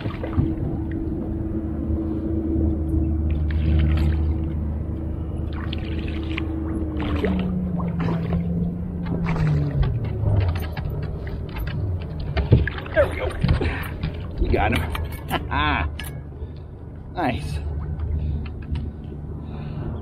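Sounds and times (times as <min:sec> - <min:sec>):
boat motor humming: 0:00.0 - 0:20.0
water splashing from thrashing fish: 0:05.5 - 0:14.4.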